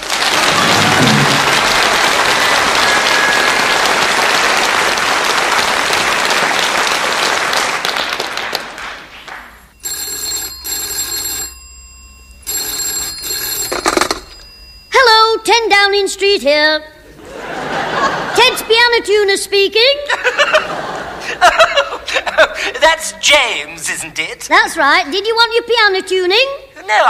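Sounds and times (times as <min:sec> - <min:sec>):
audience applauding: 0:00.0 - 0:09.7
telephone bell double ring: 0:09.8 - 0:15.2.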